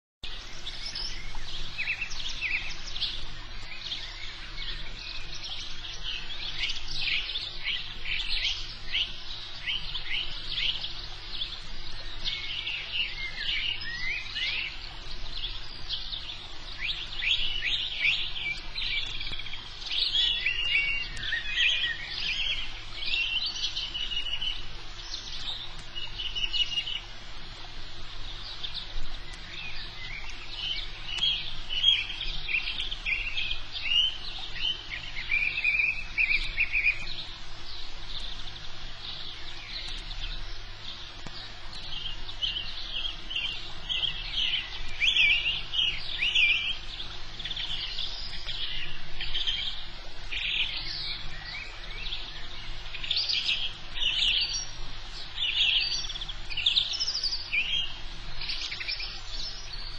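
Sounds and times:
birds chirping and trilling: 0.2 - 59.9
low steady hum: 0.2 - 59.9.

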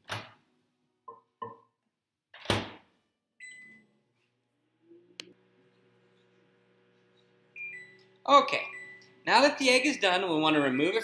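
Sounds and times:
microwave humming: 3.4 - 11.0
keypad beep: 7.6 - 8.0.

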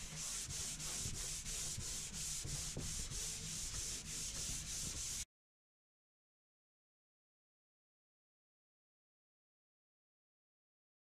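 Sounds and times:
sandpaper rubbing on wood: 0.0 - 5.2.

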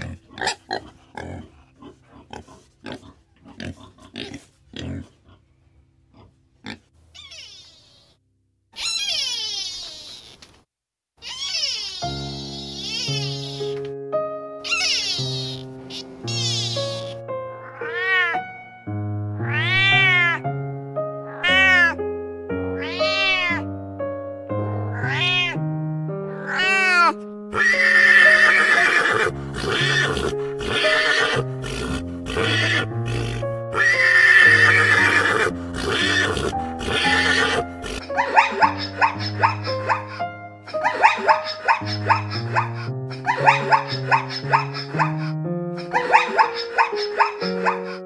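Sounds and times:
background music: 0.0 - 6.9, 12.0 - 48.0
animal calls: 7.1 - 8.2, 8.8 - 10.5, 11.2 - 13.8, 14.6 - 18.4, 26.3 - 48.0.

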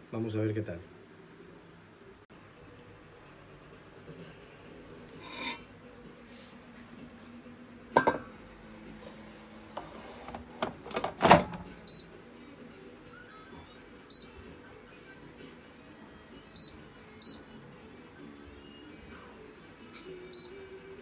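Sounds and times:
plastic basket scraping: 9.7 - 11.6
basket clattering: 9.8 - 11.7
basket latching clicks and clunk: 9.8 - 11.7
short high appliance beep: 20.3 - 20.6.

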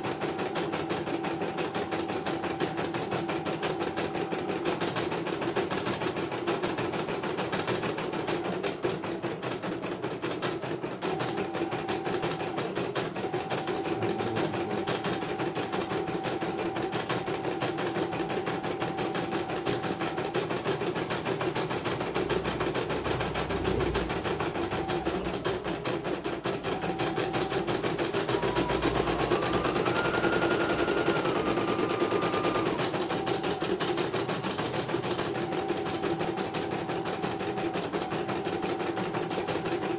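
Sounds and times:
high machine whine: 13.3 - 38.6
motor hum: 26.8 - 33.9.

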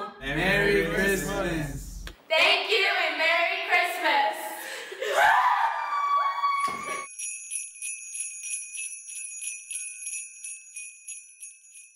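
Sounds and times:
jingle bells shaking: 0.2 - 2.0, 7.0 - 11.9.

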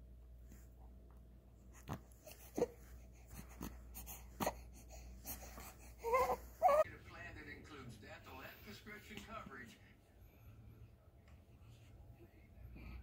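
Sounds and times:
baby grunting: 3.4 - 6.8.

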